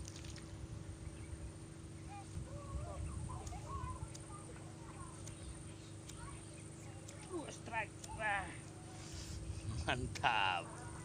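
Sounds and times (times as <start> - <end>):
wind rumbling on microphone: 0.0 - 4.1.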